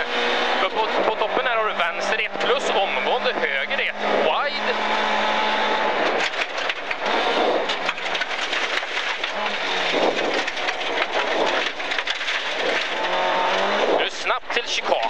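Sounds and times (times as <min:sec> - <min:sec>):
car engine under load: 0:00.0 - 0:15.0
gravel pelting the underbody: 0:06.2 - 0:15.0.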